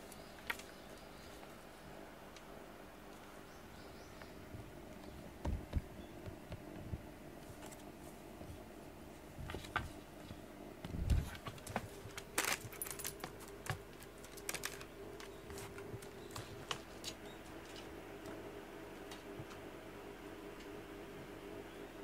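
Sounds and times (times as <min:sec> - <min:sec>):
objects clicking and rattling on desk: 0:11.2 - 0:17.8.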